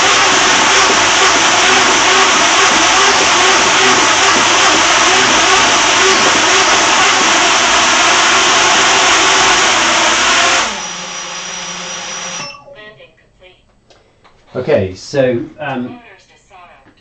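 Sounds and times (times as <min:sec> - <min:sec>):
drone motors whirring: 0:00.0 - 0:12.5.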